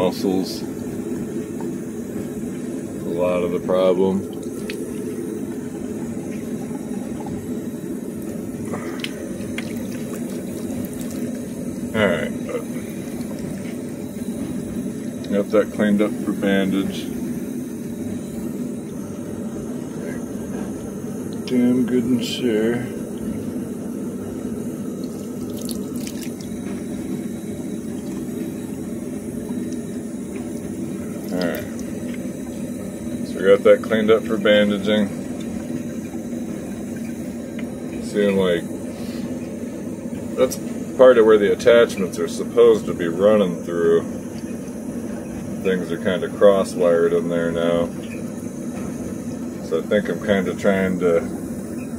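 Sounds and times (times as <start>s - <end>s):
tap water running into sink: 9.0s - 11.6s, 25.0s - 26.9s, 27.9s - 32.2s.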